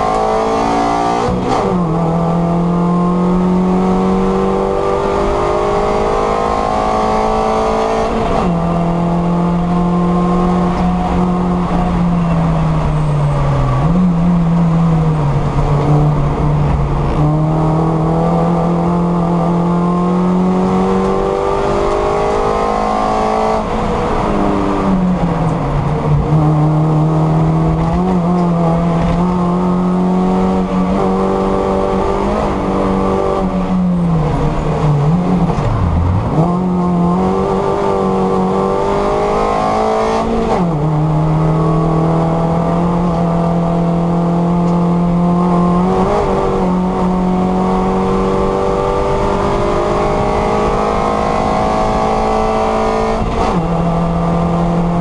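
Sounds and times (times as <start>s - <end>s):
racing car engine revving: 0.0s - 55.0s
tyre and road noise: 0.0s - 55.0s.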